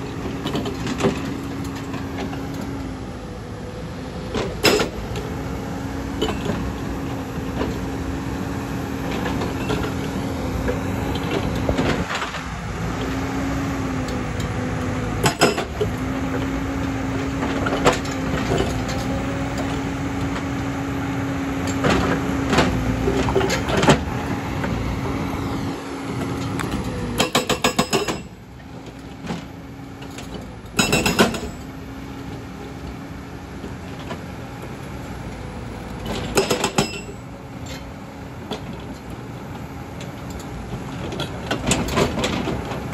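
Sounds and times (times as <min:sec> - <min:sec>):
excavator engine running: 0:00.0 - 0:42.9
hydraulic breaker hammering rock: 0:15.2 - 0:15.9, 0:27.1 - 0:28.3, 0:30.8 - 0:31.7.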